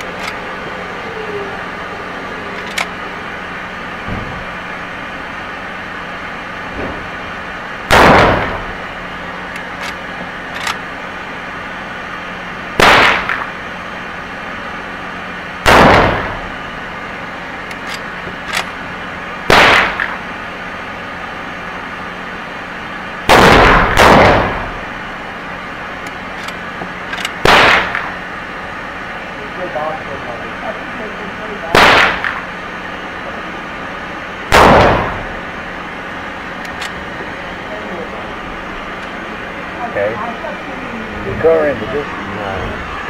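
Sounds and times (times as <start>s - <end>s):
rifle lever clacking: 2.6s - 2.9s, 9.8s - 10.8s
rifle shots echoing: 7.9s - 8.8s, 12.8s - 13.5s, 15.6s - 16.5s, 19.5s - 20.2s, 23.3s - 24.8s, 27.4s - 28.2s, 31.7s - 32.5s, 34.5s - 35.4s.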